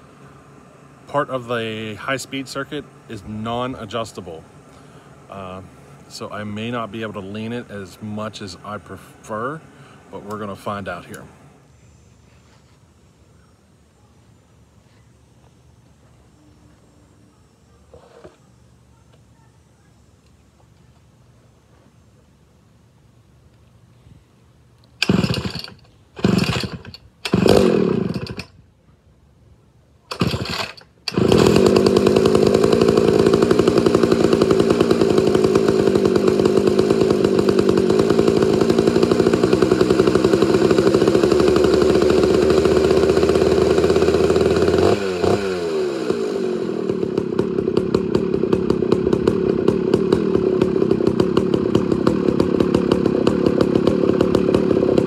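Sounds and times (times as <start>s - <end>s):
chainsaw running and idling: 0.0s - 11.6s, 24.9s - 28.6s, 30.1s - 55.0s
chainsaw pull-starter pulls: 24.9s - 28.6s, 30.1s - 55.0s.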